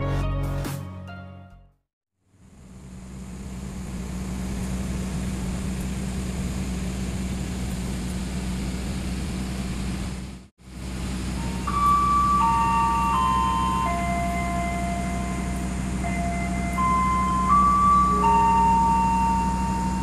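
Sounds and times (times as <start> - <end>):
diesel train engine humming: 2.2 - 20.0
station chime melody: 11.2 - 20.0.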